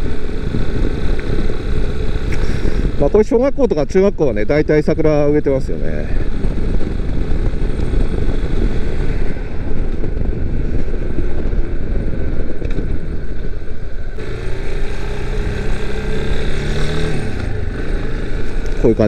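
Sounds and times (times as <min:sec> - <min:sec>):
motorcycle engine running: 0:00.0 - 0:03.2, 0:04.9 - 0:19.0
wind buffeting microphone: 0:00.0 - 0:19.0.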